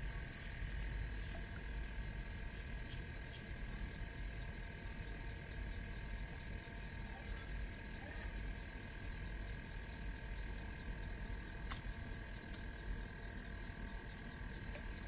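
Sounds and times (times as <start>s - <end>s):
frogs calling: 0.0s - 15.0s
sharp click: 11.7s - 11.9s.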